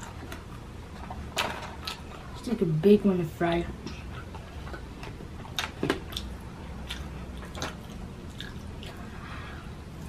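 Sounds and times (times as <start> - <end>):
person chewing fries: 4.0 - 10.0.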